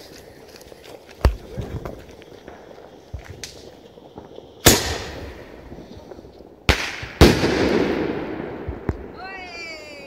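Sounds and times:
firework launch bang: 0:06.7 - 0:09.1.

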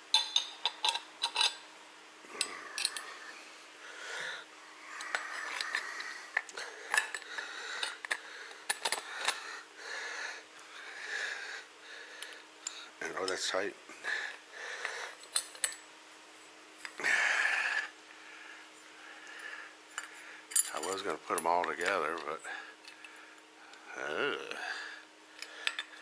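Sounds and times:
metal parts clinking: 0:00.1 - 0:01.6, 0:02.4 - 0:03.1, 0:05.0 - 0:09.4, 0:15.3 - 0:15.8.

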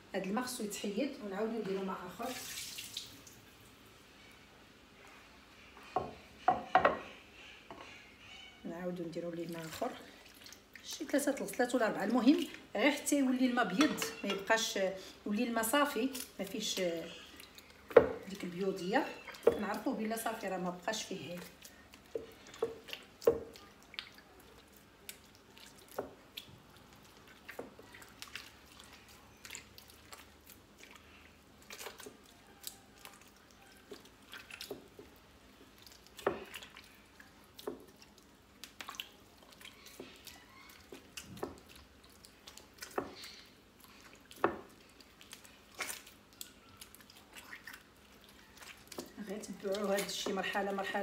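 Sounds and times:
hands squelching butter in water: 0:15.7 - 0:51.0.

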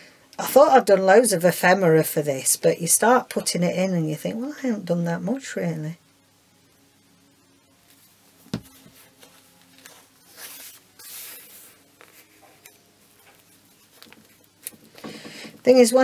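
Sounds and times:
paper rustling and rubbing: 0:07.9 - 0:14.9.

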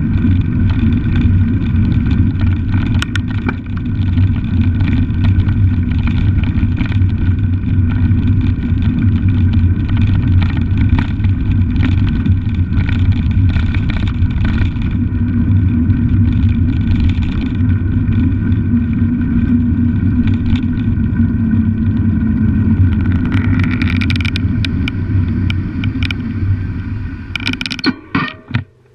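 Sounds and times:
rattling clicks from bike: 0:00.0 - 0:26.5, 0:27.3 - 0:28.9
wind buffeting microphone: 0:00.0 - 0:27.8
bicycle tyre noise: 0:00.0 - 0:28.9.

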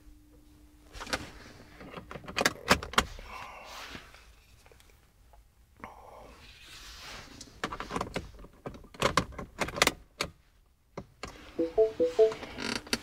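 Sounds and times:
short electronic chime: 0:11.6 - 0:12.6.

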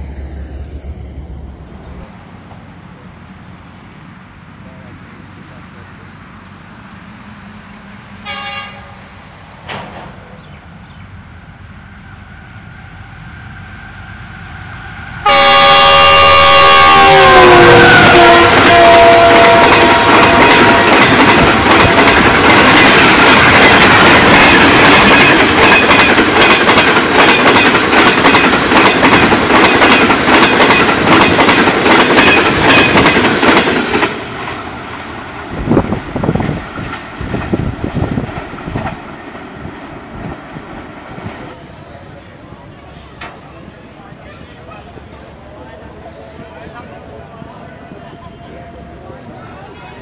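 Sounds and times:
rush of passing train: 0:00.0 - 0:50.0
train horn: 0:08.2 - 0:09.1, 0:15.2 - 0:22.1
train wheels clacking on rail joints: 0:18.3 - 0:35.0.

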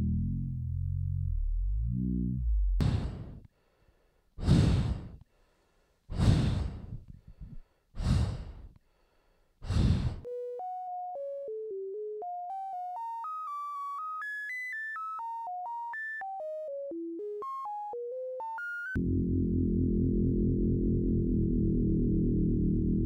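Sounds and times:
heavy breathing through gas mask: 0:02.8 - 0:10.3
simple electronic melody: 0:10.3 - 0:23.0.

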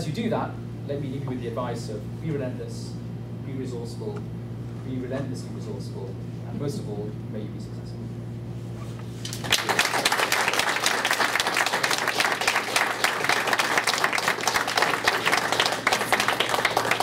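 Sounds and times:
audience clapping: 0:09.2 - 0:17.0.

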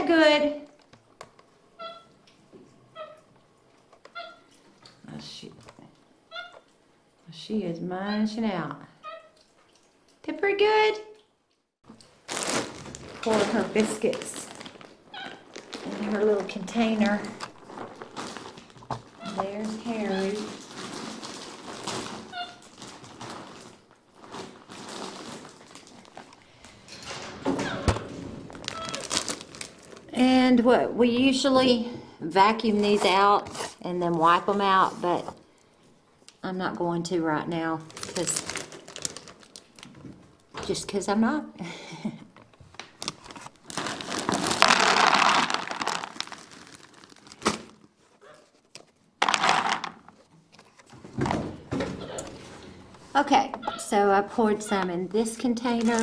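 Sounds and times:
plastic containers rustling and clicking: 0:11.9 - 0:30.2, 0:37.8 - 0:40.8, 0:42.4 - 0:53.6, 0:54.7 - 0:56.0
dry biscuits pouring from bag: 0:20.3 - 0:26.1, 0:28.5 - 0:30.1, 0:43.6 - 0:47.8.

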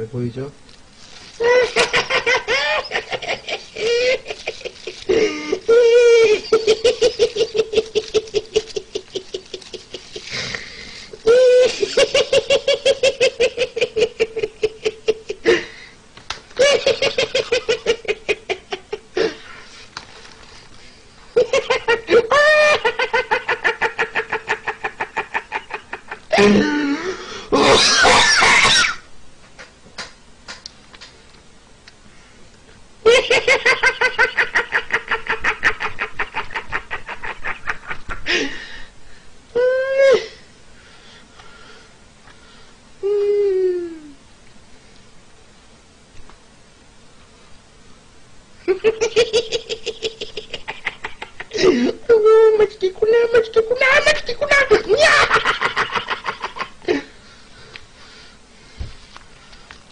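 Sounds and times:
man laughing: 0:01.4 - 0:10.6, 0:11.2 - 0:15.7, 0:16.6 - 0:19.4, 0:21.4 - 0:28.6, 0:33.0 - 0:38.8, 0:48.6 - 0:52.6, 0:53.3 - 0:57.2.

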